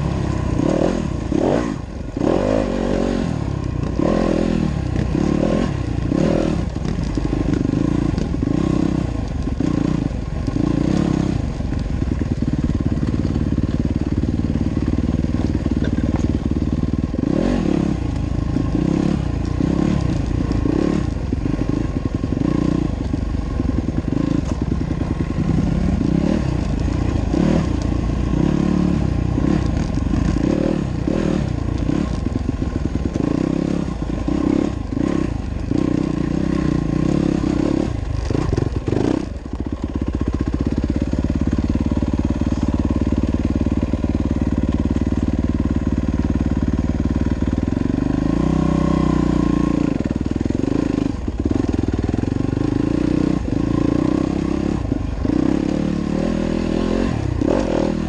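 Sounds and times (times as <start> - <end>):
dirt bike engine revving: 0.0 - 11.6, 12.4 - 58.0
knocks and clatter over rocks: 6.0 - 16.5, 37.9 - 42.8.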